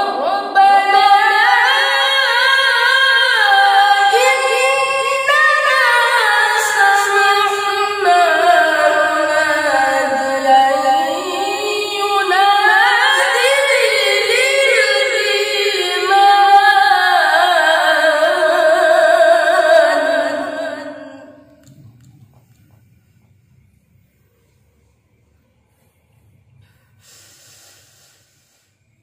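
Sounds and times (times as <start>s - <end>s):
boy reciting melodically: 0.0s - 21.6s.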